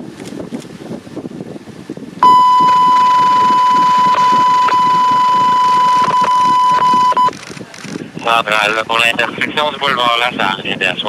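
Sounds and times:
high electronic beep: 0:02.2 - 0:07.4.

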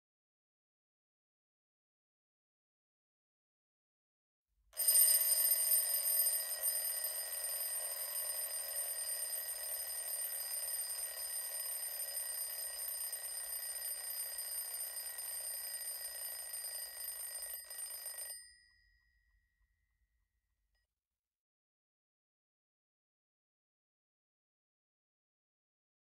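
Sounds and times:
alarm clock ringing: 0:04.8 - 0:19.1.

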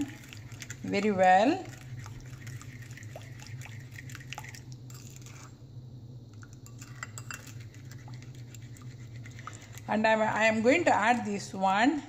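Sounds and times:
plastic spoon stirring batter: 0:00.0 - 0:05.4, 0:06.7 - 0:11.2
low hum: 0:00.0 - 0:12.0.

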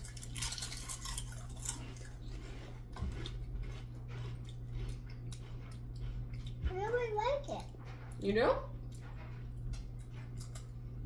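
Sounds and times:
people crunching potato chips: 0:00.0 - 0:06.6.

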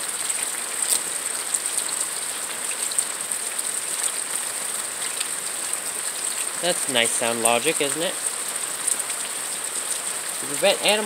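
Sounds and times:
rain falling steadily: 0:00.0 - 0:11.0
rain drop ticks: 0:05.0 - 0:11.0.

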